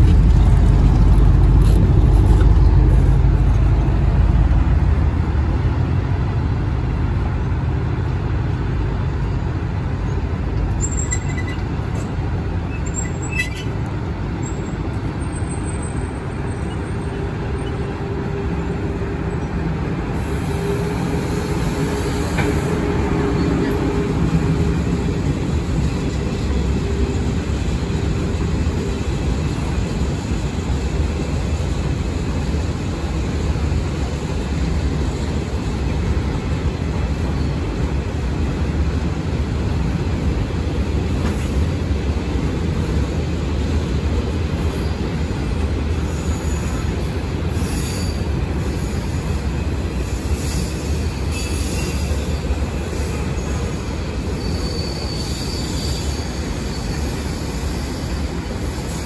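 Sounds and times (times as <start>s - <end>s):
train wheels on rails: 0.0s - 59.0s
high-pitched wheel squeals: 10.8s - 11.7s, 53.2s - 58.1s.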